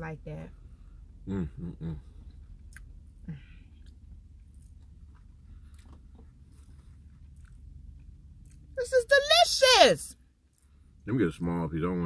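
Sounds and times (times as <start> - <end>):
steady low rumble: 0.0 - 8.8
chewing soft food: 2.2 - 8.8.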